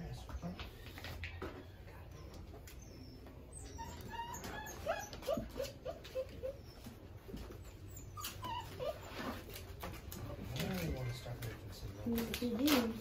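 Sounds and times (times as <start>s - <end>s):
puppy whimpering: 1.2s - 9.8s.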